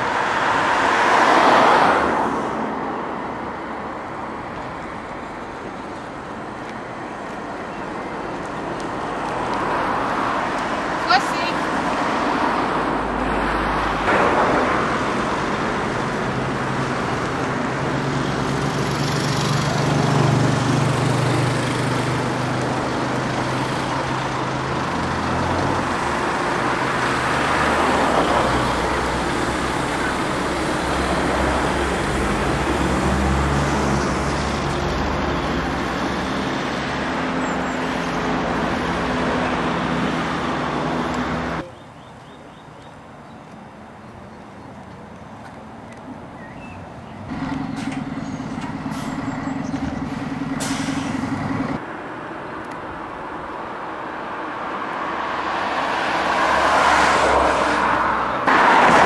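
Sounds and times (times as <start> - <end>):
tram running rumble: 46.9 - 51.8.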